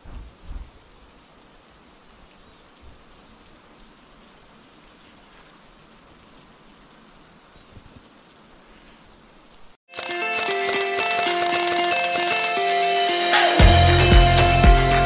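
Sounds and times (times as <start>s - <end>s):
short low thuds: 0.0s - 0.9s
steady rain: 0.0s - 9.8s.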